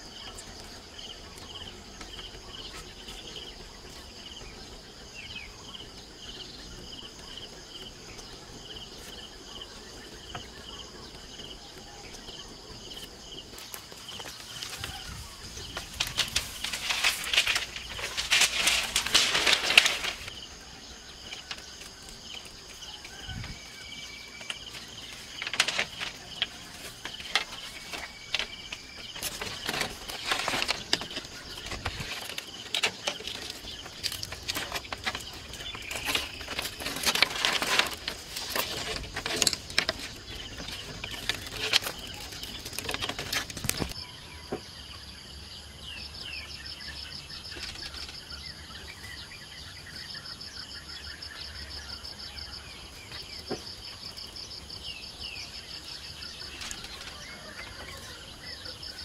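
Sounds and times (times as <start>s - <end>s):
bamboo poles clattering: 5.8s - 44.6s, 47.0s - 48.9s, 53.0s - 59.0s.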